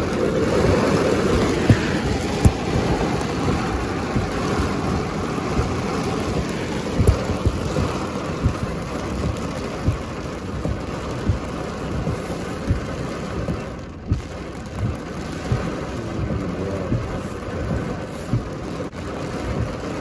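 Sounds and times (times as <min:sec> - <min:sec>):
heavy rain on a car: 0:00.0 - 0:20.0
sharp thumps: 0:01.4 - 0:04.5, 0:05.5 - 0:12.9.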